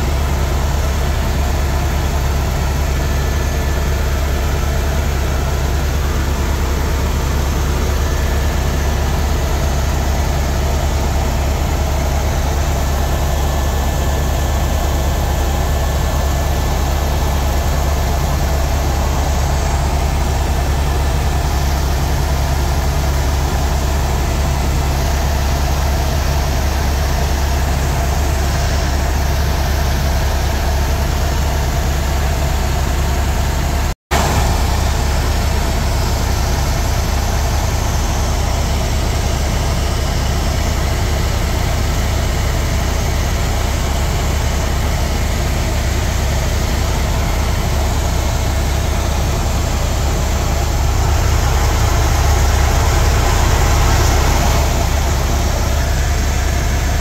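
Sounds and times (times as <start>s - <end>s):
helicopter rotor and engine drone: 0.0s - 57.0s.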